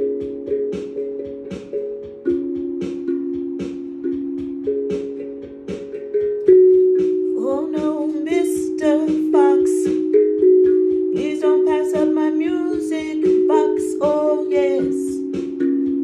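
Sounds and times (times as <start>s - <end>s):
steel tongue drum melody: 0.0s - 16.0s
person singing wordlessly: 7.4s - 10.0s, 11.2s - 15.4s.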